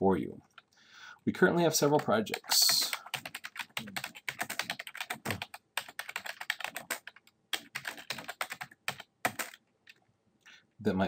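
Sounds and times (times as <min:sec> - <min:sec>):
computer keyboard typing: 0:01.8 - 0:10.0.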